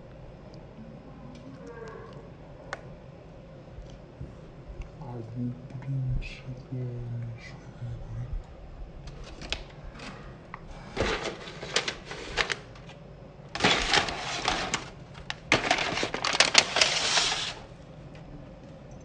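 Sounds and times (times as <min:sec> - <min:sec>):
plastic bag crinkling: 0:11.0 - 0:13.0, 0:13.6 - 0:17.8.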